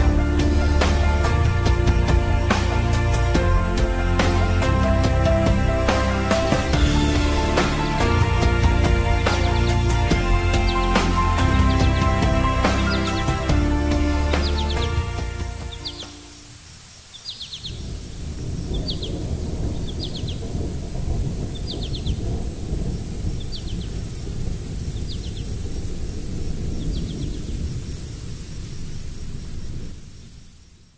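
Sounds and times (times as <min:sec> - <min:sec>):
distant thunder rumbling: 0:00.0 - 0:16.0, 0:17.6 - 0:30.5
high fast-pulsing chirring: 0:23.9 - 0:30.9.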